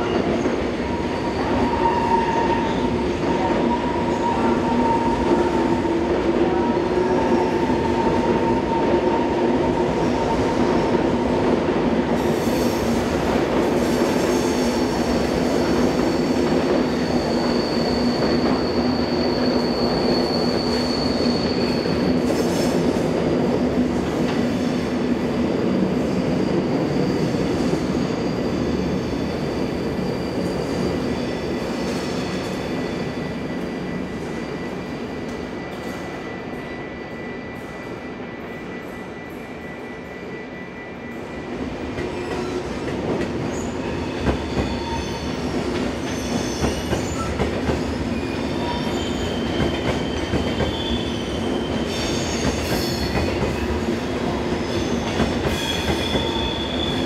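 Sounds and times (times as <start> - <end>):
train coaches rumbling: 0.0 - 57.0
wheel squeal: 17.1 - 22.0.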